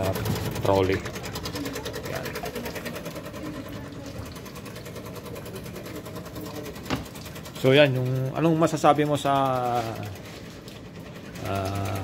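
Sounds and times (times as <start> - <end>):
coffee vending machine humming: 0.0 - 12.0
pulsing mechanical rattle: 0.0 - 12.0.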